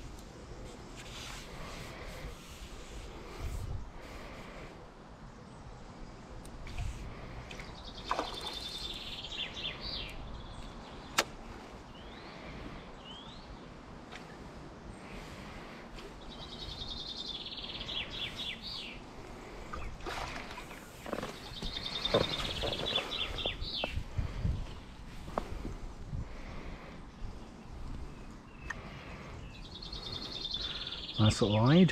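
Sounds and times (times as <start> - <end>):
sharp click: 11.1 - 11.4
songbird trilling: 29.4 - 31.9.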